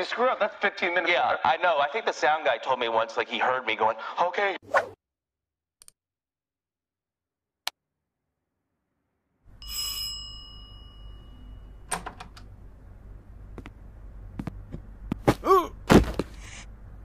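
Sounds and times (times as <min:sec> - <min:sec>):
bell-like ding: 0:09.6 - 0:11.9
low hum: 0:10.4 - 0:15.8.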